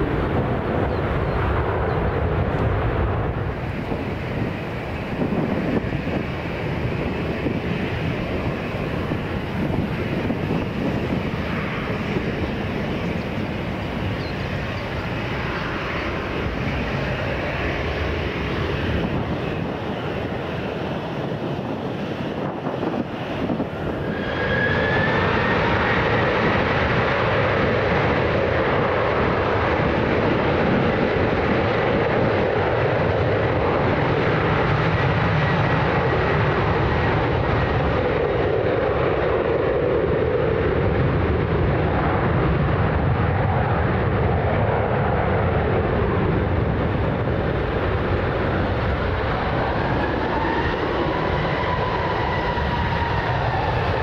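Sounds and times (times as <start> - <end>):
high jet engine whine: 0.0 - 54.0
jet engine rush: 0.0 - 54.0.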